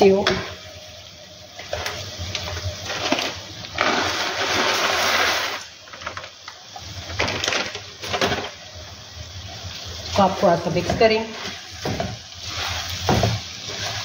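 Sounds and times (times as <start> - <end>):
crunchy noodles poured into a pan: 2.8 - 6.4
wooden spatula stirring in a pan: 10.8 - 14.0.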